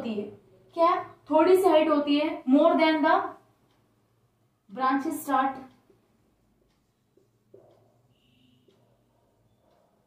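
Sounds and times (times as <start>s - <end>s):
marker writing on whiteboard: 5.0s - 10.0s.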